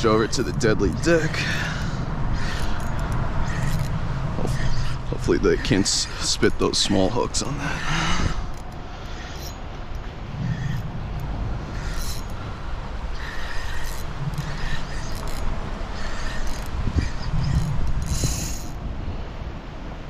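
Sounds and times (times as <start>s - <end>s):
steady low rumble: 0.0s - 20.0s
spinning reel whirring: 13.2s - 16.8s, 17.5s - 18.7s.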